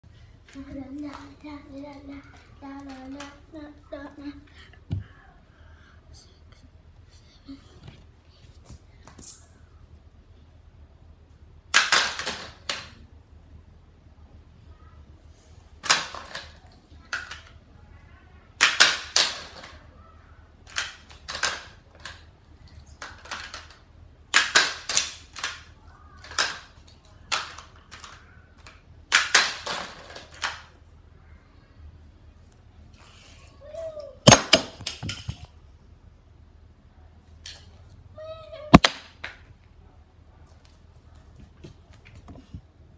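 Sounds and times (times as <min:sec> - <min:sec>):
faint low hum: 0:00.0 - 0:18.6
plastic toy clacks and snaps: 0:18.6 - 0:19.8, 0:20.6 - 0:30.7.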